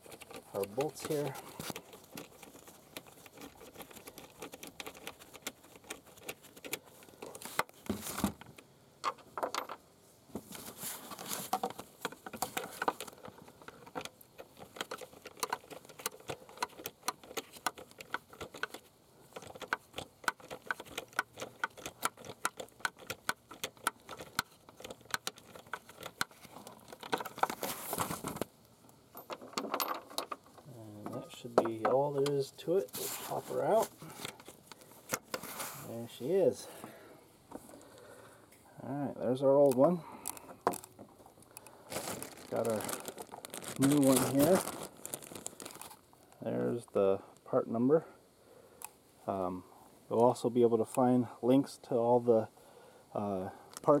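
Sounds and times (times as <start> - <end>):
handling rustles and knocks: 0.0 - 37.9, 39.5 - 46.1.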